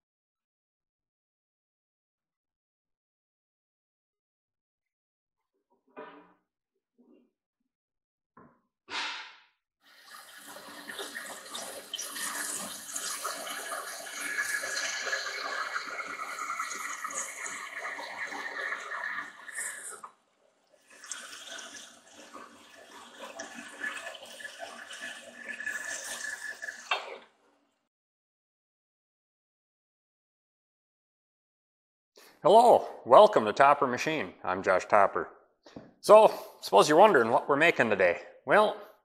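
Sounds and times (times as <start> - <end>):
sharp knock: 8.9 - 9.4.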